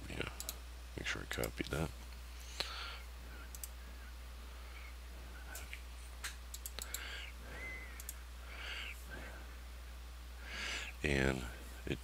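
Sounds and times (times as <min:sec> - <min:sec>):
steady low hum: 0:00.0 - 0:12.0
computer mouse clicking: 0:03.5 - 0:03.8, 0:05.5 - 0:07.1, 0:08.0 - 0:08.2.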